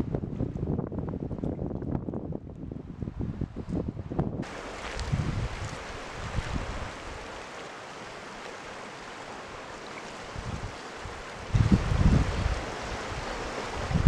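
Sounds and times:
wind rumbling on microphone: 0:00.0 - 0:07.5, 0:09.5 - 0:14.0
river rushing past boulders: 0:03.9 - 0:14.0.

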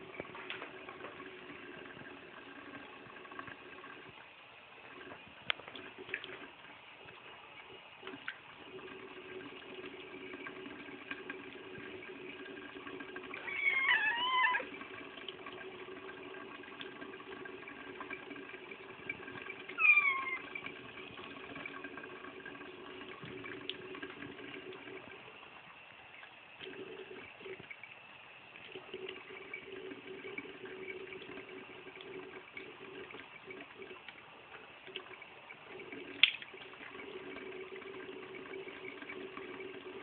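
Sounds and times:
faucet running: 0:00.0 - 0:40.0
cat meowing: 0:13.4 - 0:14.7, 0:19.8 - 0:20.5.

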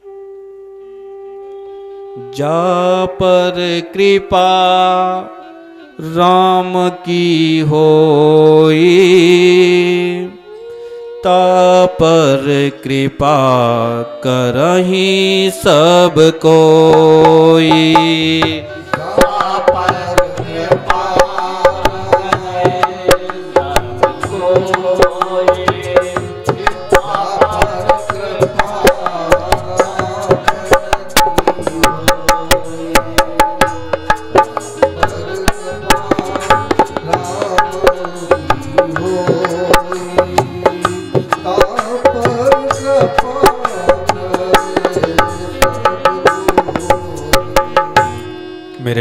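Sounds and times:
tabla and percussion beat: 0:14.5 - 0:48.7.

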